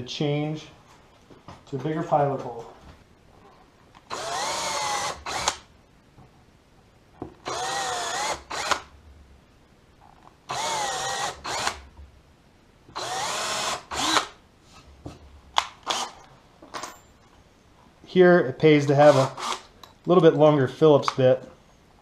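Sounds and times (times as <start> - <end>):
cordless drill boring into wood: 4.1 - 5.7, 7.4 - 8.9, 10.5 - 11.9, 13.0 - 14.4, 15.8 - 16.2, 19.0 - 19.7.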